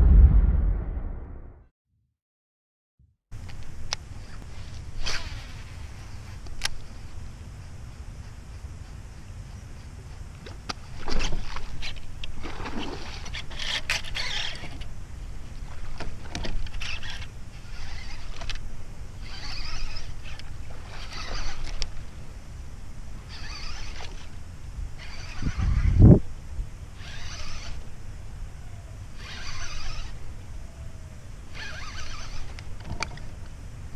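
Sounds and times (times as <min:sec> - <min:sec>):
wind rumble on microphone: 0:00.0 - 0:01.6, 0:24.7 - 0:26.8
heavy low thump: 0:00.0 - 0:01.7
fishing reel cranking: 0:13.1 - 0:14.9, 0:16.6 - 0:18.6, 0:19.2 - 0:21.9, 0:23.3 - 0:24.3, 0:25.0 - 0:25.8, 0:27.0 - 0:27.8, 0:29.2 - 0:30.2, 0:31.5 - 0:32.6.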